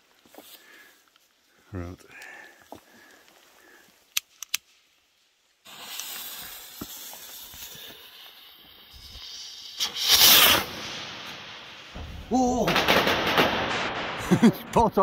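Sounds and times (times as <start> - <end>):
firework fuse hissing and fizzing: 0.0 - 1.4, 2.6 - 15.0
sharp clicks: 4.1 - 4.7
firework rocket burst: 5.6 - 15.0.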